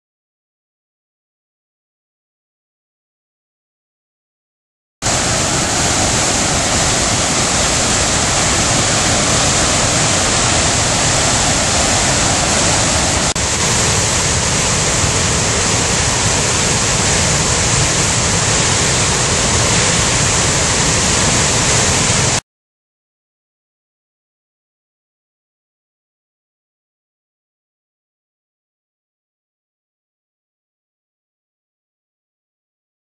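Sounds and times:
water rushing over rapids: 0:05.0 - 0:22.4.

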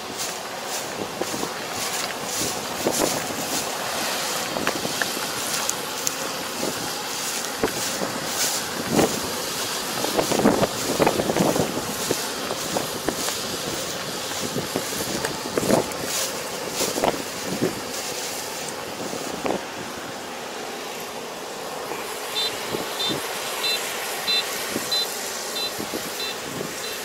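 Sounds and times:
wind buffeting microphone: 0:00.0 - 0:18.1, 0:25.7 - 0:26.9
vehicle engine running: 0:00.0 - 0:27.0.

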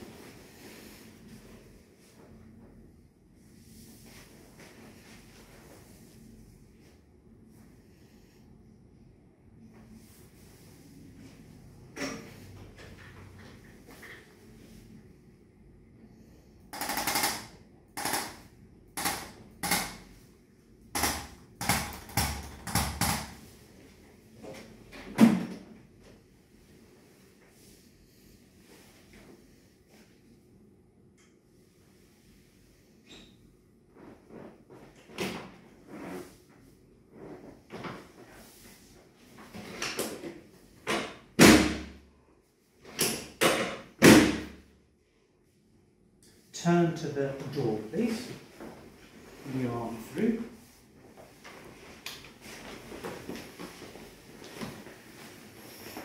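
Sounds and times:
rapid clicking bursts: 0:16.7 - 0:20.0.

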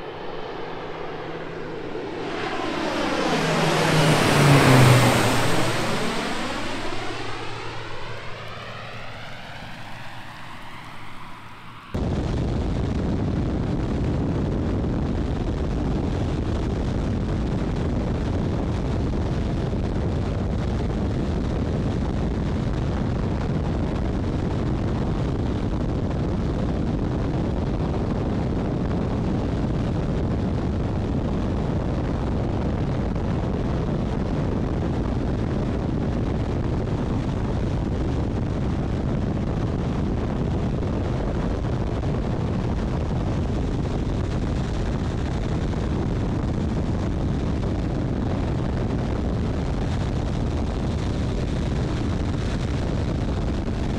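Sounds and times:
airplane engine noise: 0:00.0 - 0:53.9
heavy wind noise: 0:00.0 - 0:53.9.

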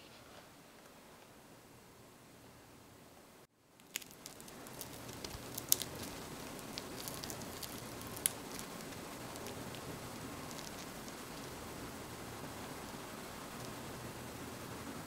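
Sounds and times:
faint hiss: 0:00.0 - 0:15.0
cookie crust crackling: 0:03.7 - 0:14.4.

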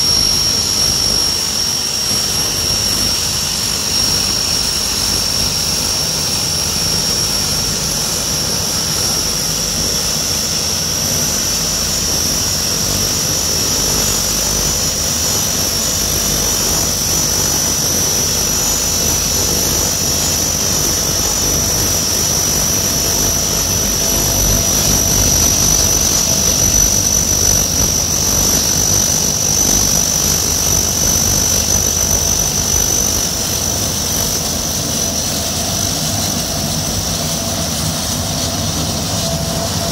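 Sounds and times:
low propeller drone: 0:00.0 - 0:39.9
turbine whine: 0:00.0 - 0:39.9.

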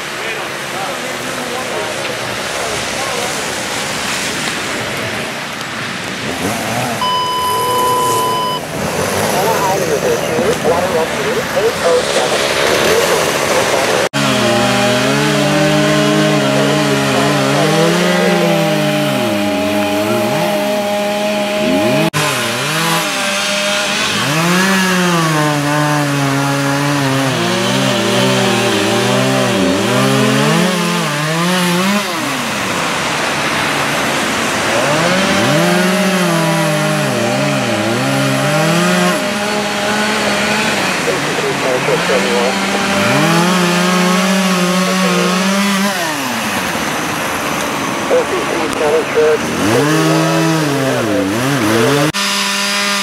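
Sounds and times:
chainsaw cutting wood: 0:06.2 - 0:09.4, 0:12.3 - 0:48.0, 0:49.4 - 0:53.0.

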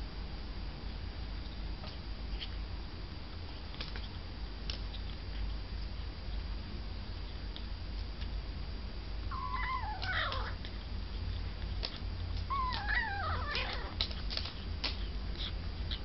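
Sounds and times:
kitten chewing and lapping: 0:03.4 - 0:08.5, 0:10.3 - 0:16.0
kitten mewing: 0:09.3 - 0:10.7, 0:12.4 - 0:14.2.

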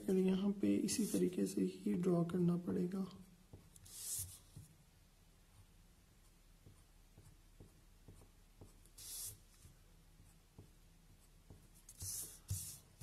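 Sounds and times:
pencil scratching on paper: 0:03.5 - 0:04.7, 0:06.2 - 0:13.0.

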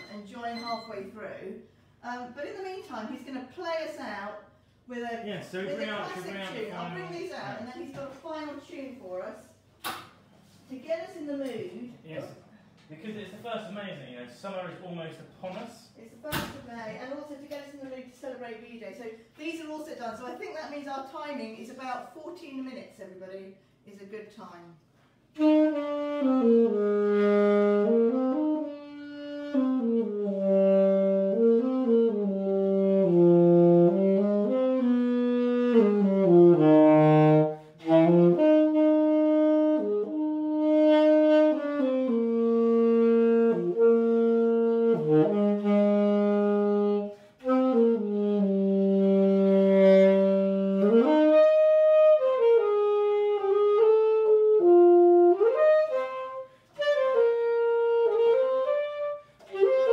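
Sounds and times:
solo wind instrument melody: 0:25.3 - 0:59.9.

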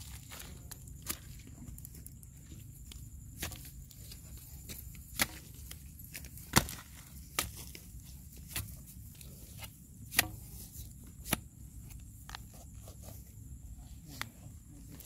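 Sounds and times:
stick knocking into hard mud: 0:05.1 - 0:05.6, 0:06.4 - 0:07.6, 0:10.1 - 0:10.6.

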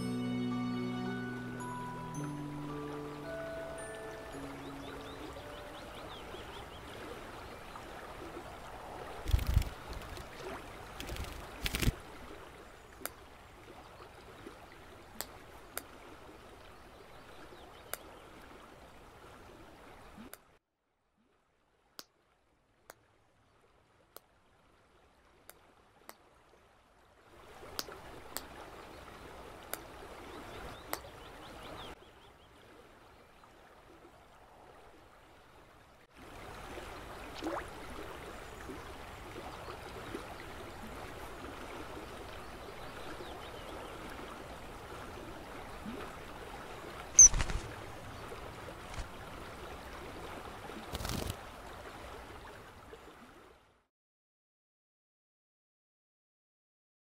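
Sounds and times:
river water rushing: 0:00.0 - 0:12.6, 0:36.2 - 0:53.3.

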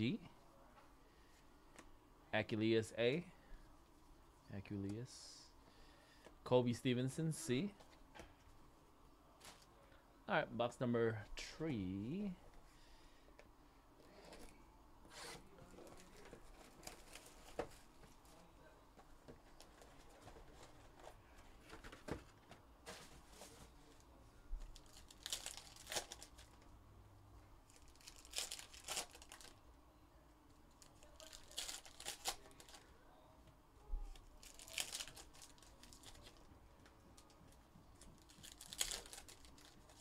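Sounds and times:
foil wrappers crinkling and tearing: 0:24.6 - 0:26.6, 0:27.7 - 0:29.6, 0:30.8 - 0:32.9, 0:34.1 - 0:36.5, 0:37.2 - 0:40.0.

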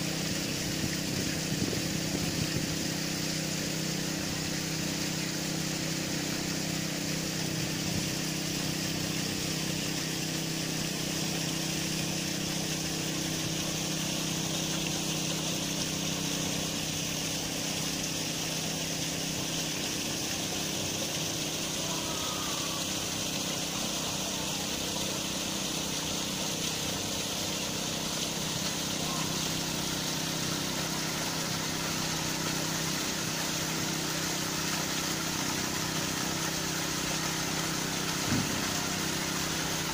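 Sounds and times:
constant hiss: 0:00.0 - 0:39.9
low mechanical hum: 0:00.0 - 0:39.9.

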